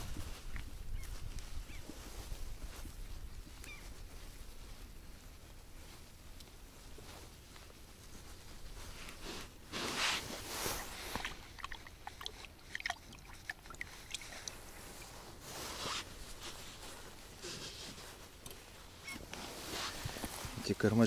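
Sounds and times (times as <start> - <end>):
fishing tackle rustling: 4.9 - 21.0.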